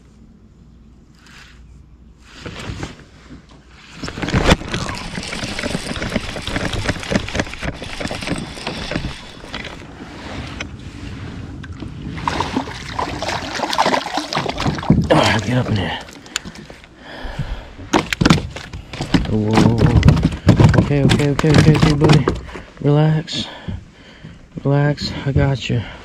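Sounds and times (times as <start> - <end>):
rough rustling: 1.2 - 11.5
fish thrashing at surface: 4.0 - 10.0, 12.1 - 16.8
water splashing against hull: 4.0 - 17.0
fishing reel cranking: 4.6 - 9.8.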